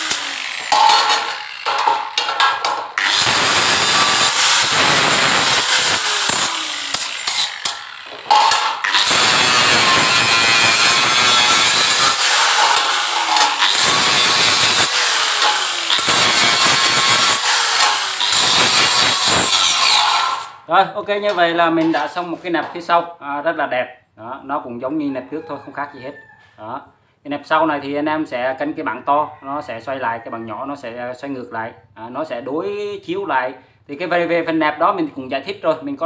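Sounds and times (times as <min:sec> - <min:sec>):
angle grinder grinding metal: 0:00.0 - 0:20.6.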